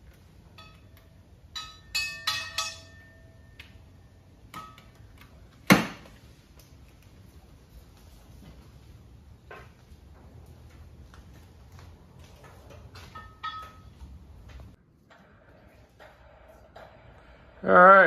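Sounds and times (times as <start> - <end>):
steel chain clinking and rattling: 0.4 - 3.6, 12.7 - 14.1.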